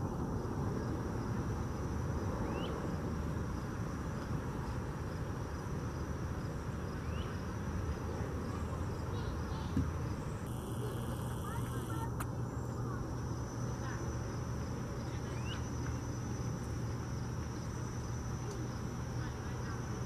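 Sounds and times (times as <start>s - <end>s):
low background noise: 0.0s - 20.0s
high-pitched insect drone: 10.5s - 12.1s.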